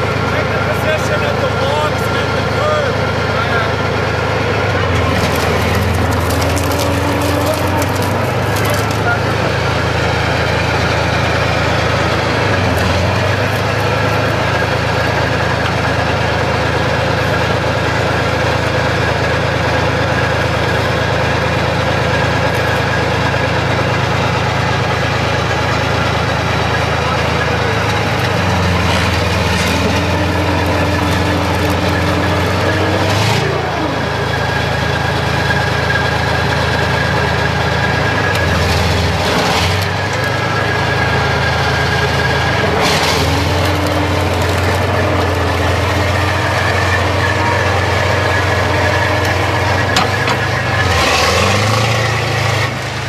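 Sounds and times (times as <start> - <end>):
tank diesel engine revving: 0.0 - 53.0.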